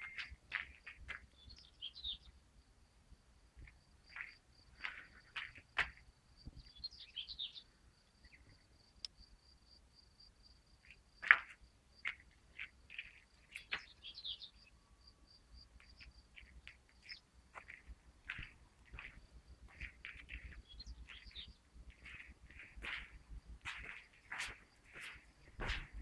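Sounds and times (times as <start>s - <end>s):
bird chirps: 0.0s - 2.4s, 6.5s - 8.7s, 13.0s - 15.2s, 15.8s - 17.8s, 19.7s - 23.1s.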